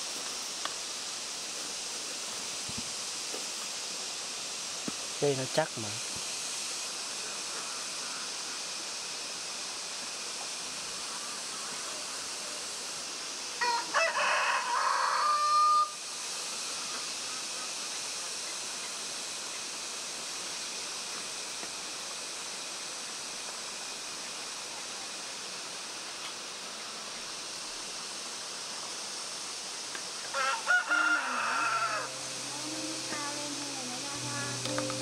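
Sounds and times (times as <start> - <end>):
steady background hiss: 0.0 - 35.0
rooster crowing: 13.6 - 16.0, 30.3 - 32.5.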